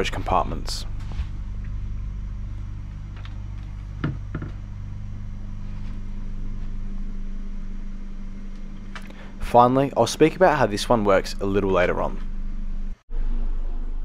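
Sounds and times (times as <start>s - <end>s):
low cabin hum: 0.0s - 14.0s
cupboard door knocks: 4.0s - 4.6s.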